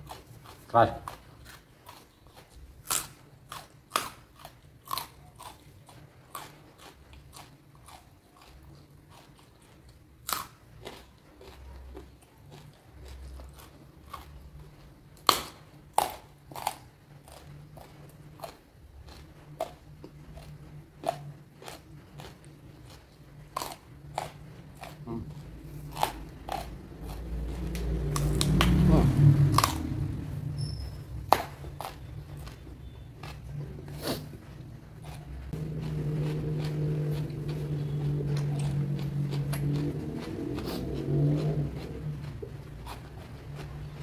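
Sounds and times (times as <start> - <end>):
person crunching raw food: 0.0 - 5.7, 6.3 - 30.2, 35.0 - 44.0
person chewing: 0.0 - 44.0.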